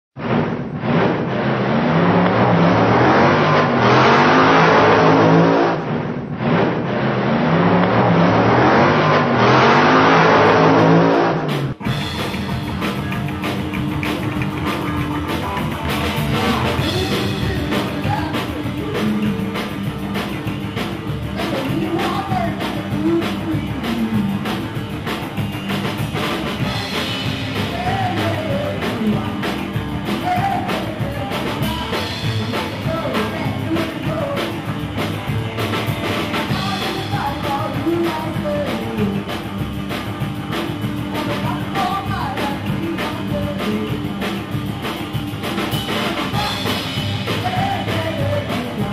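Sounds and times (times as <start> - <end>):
loud rushing sound: 0.2 - 17.0
drum kit: 0.2 - 48.9
electric guitar: 0.2 - 48.9
upright double bass: 7.5 - 48.9
woman singing: 16.5 - 19.7, 21.4 - 24.0, 27.6 - 34.7, 36.4 - 39.4, 41.2 - 44.3, 46.1 - 48.9.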